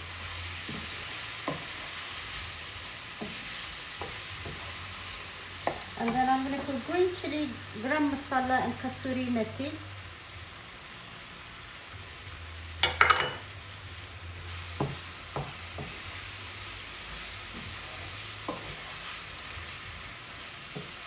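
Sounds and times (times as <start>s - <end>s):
curry sizzling in a frying pan: 0.0s - 21.0s
spatula stirring: 0.4s - 6.7s, 17.0s - 21.0s.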